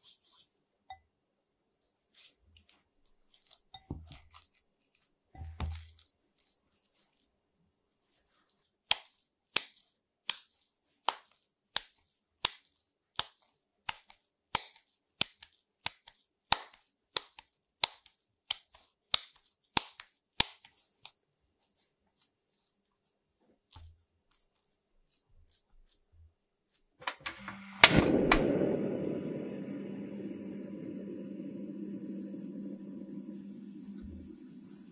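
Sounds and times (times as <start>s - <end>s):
wet slaps of meat mixture: 5.4s - 6.5s, 8.2s - 22.6s
stove igniter click: 27.0s - 29.7s
gas burner rushing: 27.0s - 34.9s.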